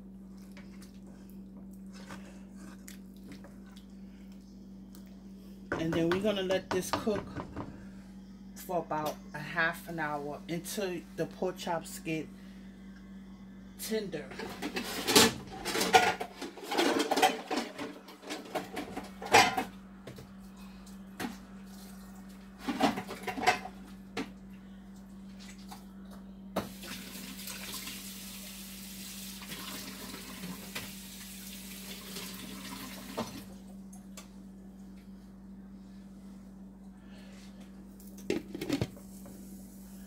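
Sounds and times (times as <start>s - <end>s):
steady low hum: 0.0s - 26.7s, 33.3s - 40.0s
dishes clattering: 14.4s - 19.7s
kitchen tap running: 26.6s - 33.5s.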